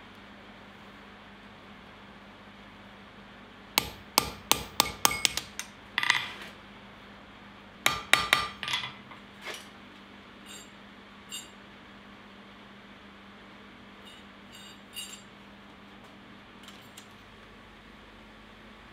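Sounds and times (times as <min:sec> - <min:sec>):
hammer striking steel on anvil: 0:03.8 - 0:06.3, 0:07.9 - 0:09.0.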